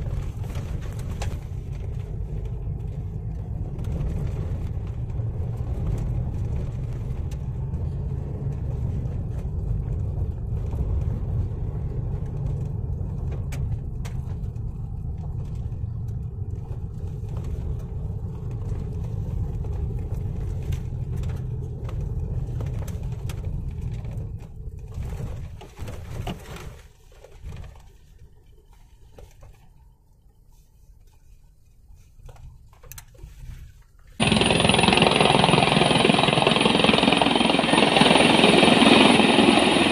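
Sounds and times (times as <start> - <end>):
car engine: 34.2 - 39.9.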